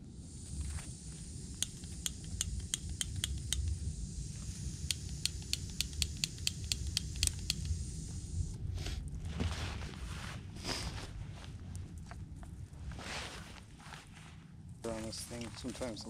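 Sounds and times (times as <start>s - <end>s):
low steady rumble: 0.0s - 16.0s
stove igniter clicking: 1.1s - 7.9s.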